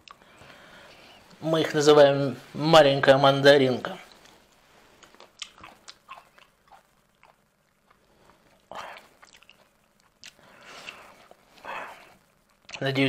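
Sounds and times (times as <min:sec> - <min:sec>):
chewing berries: 0:05.0 - 0:12.9.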